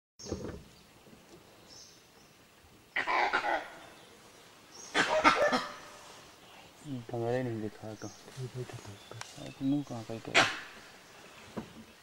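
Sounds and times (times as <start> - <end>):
harsh animal calls: 2.9 - 4.0, 4.8 - 6.1, 9.9 - 10.9.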